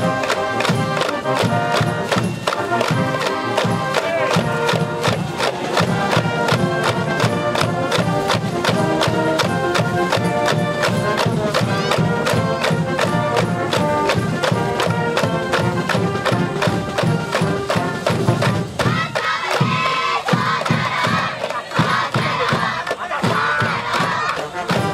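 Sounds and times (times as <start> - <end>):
brass band playing cheer tune: 0.0 - 24.9
steady drum beat: 0.0 - 24.9
crowd group shout: 18.8 - 24.7.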